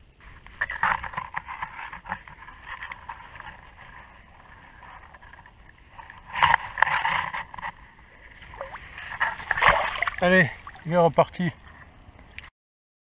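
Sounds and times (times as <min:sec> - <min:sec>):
shallow water lapping: 0:00.2 - 0:12.5
fish splashing: 0:02.2 - 0:10.9.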